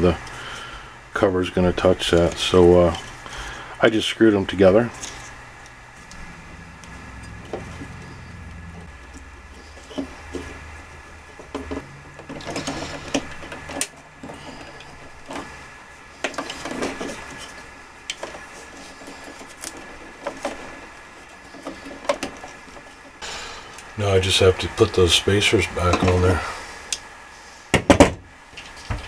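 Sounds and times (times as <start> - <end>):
low hum: 0.0 - 20.3
wires rustling: 0.0 - 27.6.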